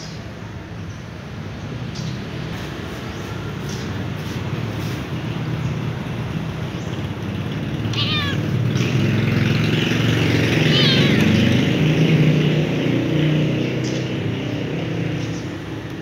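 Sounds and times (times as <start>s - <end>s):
kitten meowing: 7.9s - 8.6s, 10.6s - 11.4s.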